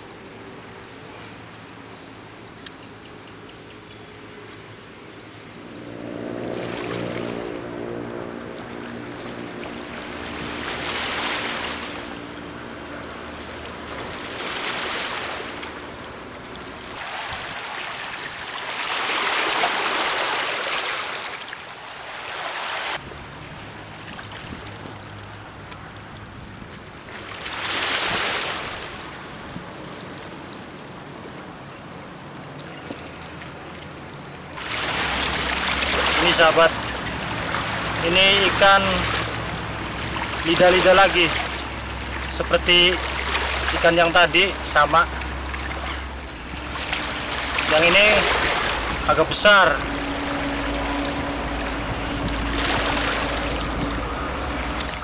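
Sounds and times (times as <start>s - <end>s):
low engine hum: 0.0s - 19.0s, 28.6s - 55.0s
waves washing over rocks: 9.5s - 12.2s, 16.8s - 23.0s, 27.1s - 29.8s, 34.5s - 55.0s.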